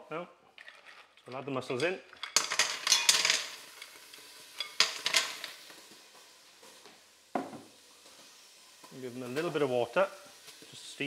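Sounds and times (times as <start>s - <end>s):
mussel shells clattering in pan: 2.1s - 5.7s.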